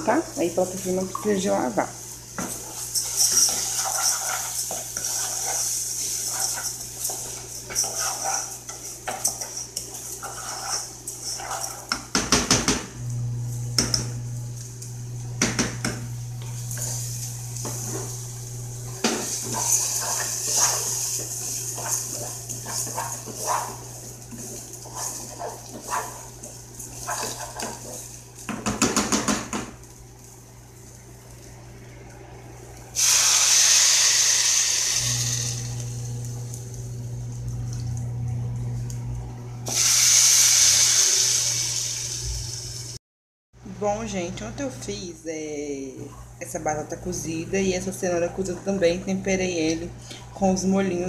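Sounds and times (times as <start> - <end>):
spatula scraping frying rice: 2.0 - 12.1, 16.4 - 28.6
spatula knocking against pot: 28.5 - 29.7.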